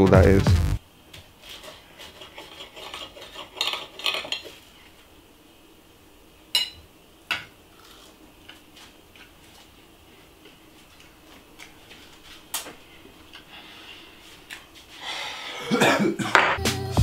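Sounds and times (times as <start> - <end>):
cutlery scraping on plate: 1.5 - 4.6.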